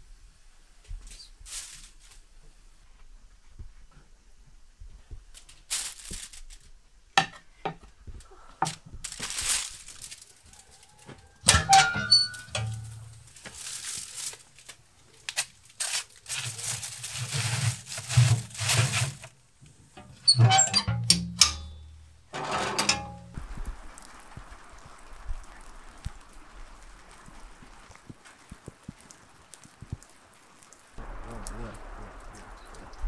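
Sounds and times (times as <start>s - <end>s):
aluminium foil crinkling: 1.0s - 2.4s, 5.3s - 6.8s, 8.2s - 20.4s, 21.7s - 31.6s
metal tray clicks and knocks: 11.5s - 13.0s, 20.0s - 21.8s, 22.4s - 23.4s
tray scraping into oven: 11.5s - 13.2s, 16.4s - 19.3s, 20.0s - 21.7s, 22.3s - 23.4s.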